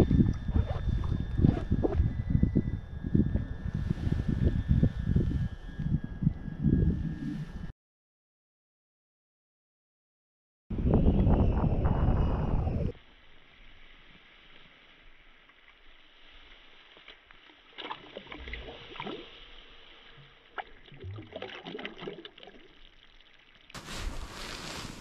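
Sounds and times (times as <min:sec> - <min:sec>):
wind buffeting microphone: 0:00.0 - 0:07.7, 0:10.7 - 0:13.0
water splashing and dripping: 0:17.0 - 0:19.4, 0:20.2 - 0:23.8.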